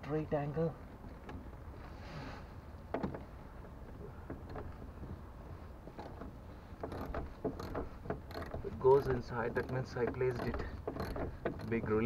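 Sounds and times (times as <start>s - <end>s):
wrench clicking on bolt: 6.8s - 11.8s.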